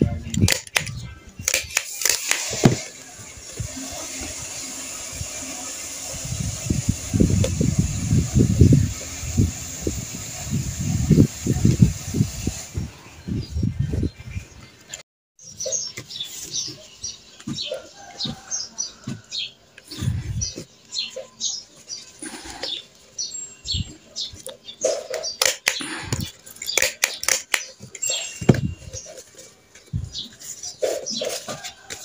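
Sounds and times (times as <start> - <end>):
sharp clicks: 0.3 - 2.8, 25.4 - 27.8
birds chirping: 12.4 - 32.0.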